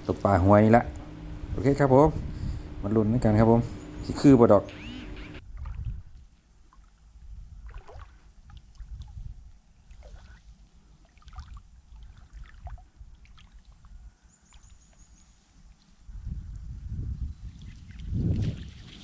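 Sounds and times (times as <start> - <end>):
low rumble: 0.0 - 6.3
muddy water sloshing: 3.8 - 15.1
small splashes and drips: 5.5 - 15.1.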